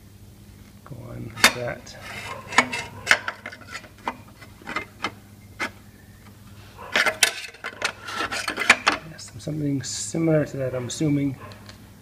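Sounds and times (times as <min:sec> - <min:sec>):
metal plate clicking and scraping: 0:01.3 - 0:05.8, 0:06.8 - 0:09.5.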